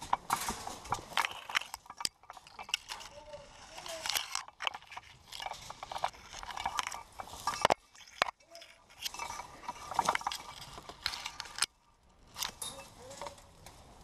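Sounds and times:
gear rattling and clicking: 0.0s - 13.7s
dry grass rustling against gear: 0.0s - 14.0s.

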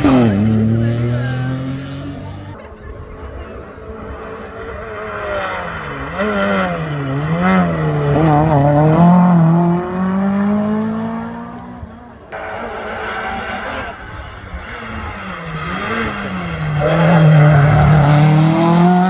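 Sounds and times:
rally car engine revving past: 4.2s - 19.0s.

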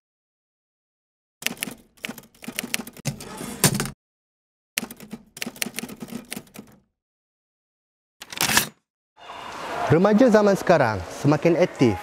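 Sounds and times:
typewriter keys clacking: 4.8s - 6.8s.

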